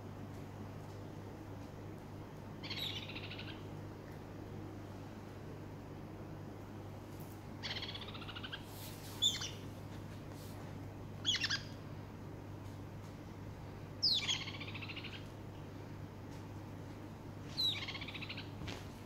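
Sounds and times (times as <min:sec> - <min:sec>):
parrots calling: 0:02.6 - 0:03.6, 0:07.6 - 0:09.6, 0:11.2 - 0:11.8, 0:14.0 - 0:15.3, 0:17.6 - 0:18.5.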